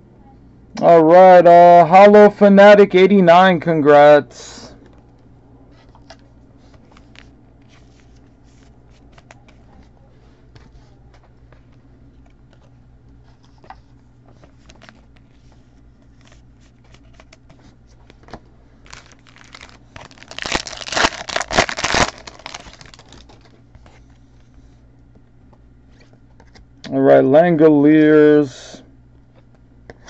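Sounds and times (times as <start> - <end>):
cards clicking and rustling: 5.8 - 10.0, 10.6 - 24.5
wrapper tearing and crinkling: 18.8 - 23.6.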